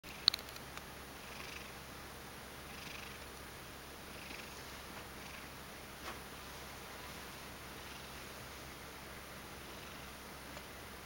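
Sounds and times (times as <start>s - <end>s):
cat purring softly: 1.2s - 1.8s, 2.6s - 3.3s, 4.0s - 5.6s, 6.4s - 10.6s.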